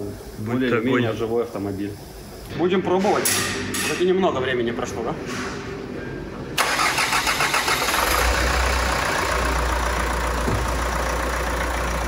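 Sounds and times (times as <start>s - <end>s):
starter motor cranking: 6.6s - 8.6s
diesel engine idling: 6.6s - 12.0s.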